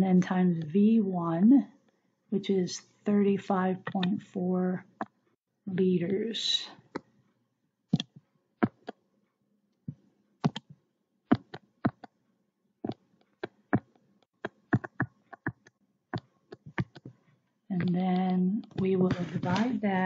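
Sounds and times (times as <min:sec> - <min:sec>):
input device clicks: 0:03.8 - 0:04.2, 0:07.9 - 0:09.0, 0:10.4 - 0:12.1, 0:12.9 - 0:17.1.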